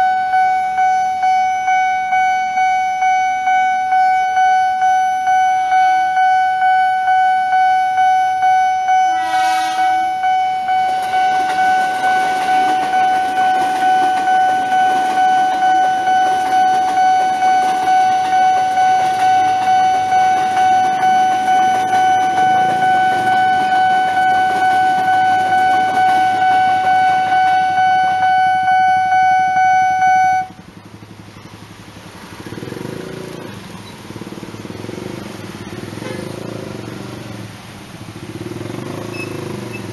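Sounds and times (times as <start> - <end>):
level crossing alarm tone: 0.0 - 30.6
train horn: 8.9 - 30.5
train wheels rumbling on rails: 9.2 - 39.9
motorcycle engines pulling away: 30.8 - 39.9.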